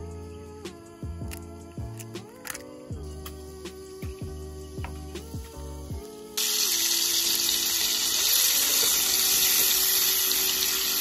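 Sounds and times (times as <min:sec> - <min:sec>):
soft background music: 0:00.0 - 0:11.0
bacon sizzling in a frying pan: 0:06.4 - 0:11.0.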